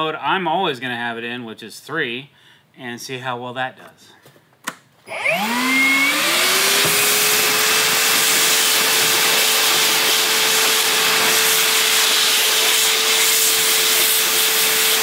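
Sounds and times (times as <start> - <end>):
shop vacuum motor whining: 5.0 - 15.0
vacuum sucking sawdust: 5.1 - 15.0.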